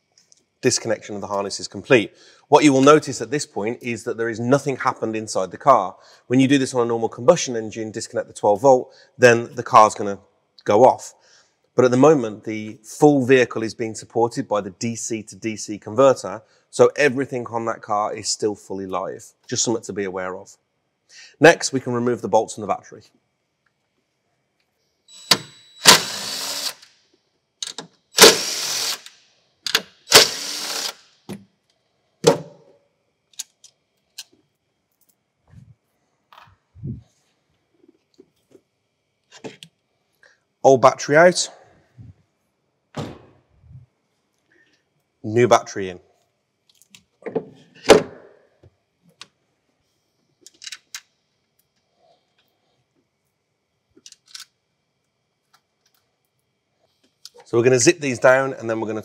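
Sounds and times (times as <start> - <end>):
cordless driver spinning bolts: 29.7 - 31.0.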